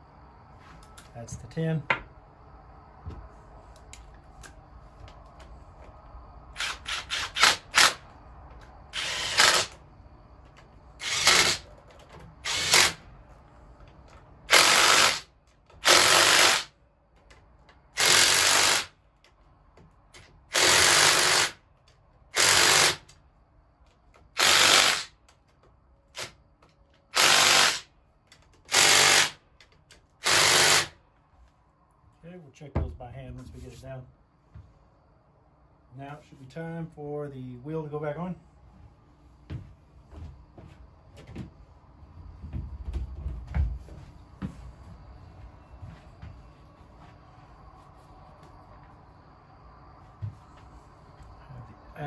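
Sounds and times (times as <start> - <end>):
cordless power driver running bolts: 9.0 - 9.8, 11.0 - 11.8, 12.4 - 13.0, 14.5 - 16.7, 18.0 - 18.9, 22.4 - 23.2, 24.3 - 25.1, 27.1 - 27.9, 28.7 - 29.4.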